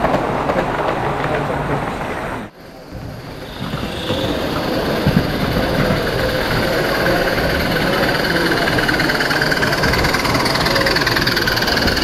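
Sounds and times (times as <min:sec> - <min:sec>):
background voices: 0:00.1 - 0:12.0
steam model locomotives running: 0:02.6 - 0:12.0.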